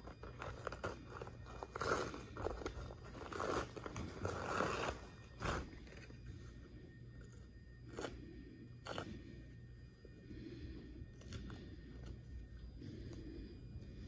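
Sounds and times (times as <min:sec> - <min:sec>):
paper tearing and crinkling: 0:00.2 - 0:06.0.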